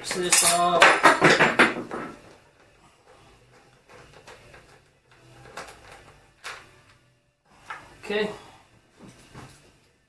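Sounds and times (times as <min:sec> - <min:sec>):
metallic clatter: 0:00.1 - 0:01.0.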